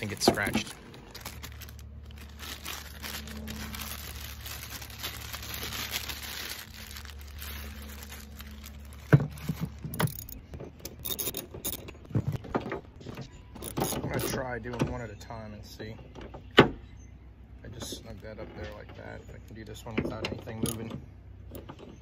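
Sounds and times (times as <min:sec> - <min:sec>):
plastic bag crinkling: 0:00.0 - 0:10.4
low steady hum: 0:00.0 - 0:22.0.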